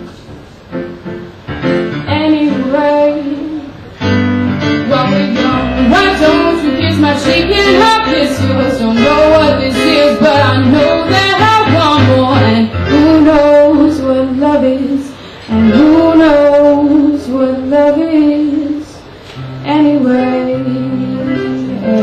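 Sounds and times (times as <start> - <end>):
guitar accompaniment: 0.0 - 13.8
woman singing long notes: 4.8 - 18.8.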